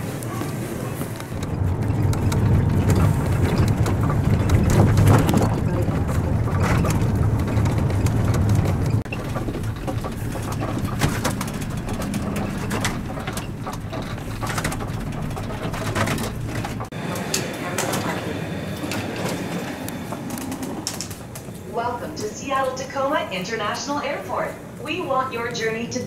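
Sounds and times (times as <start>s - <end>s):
vehicle rumble from inside: 0.1s - 18.2s.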